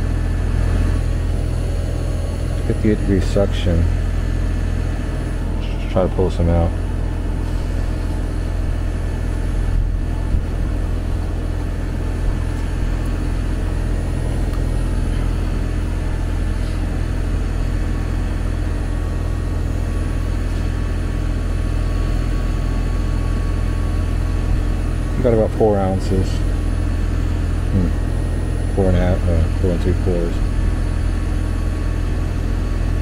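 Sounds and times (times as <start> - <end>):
air conditioner unit humming: 0.0 - 33.0.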